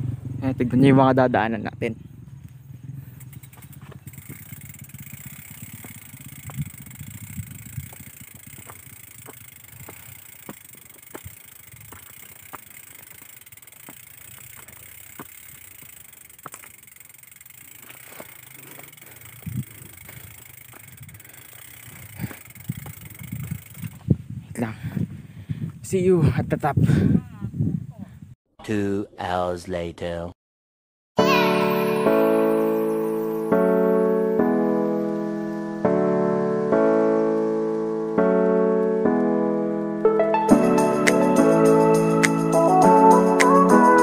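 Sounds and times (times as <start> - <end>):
mountain bike rumbling on dirt trail: 0.0 - 25.9
small clicks and rattles: 3.1 - 24.0.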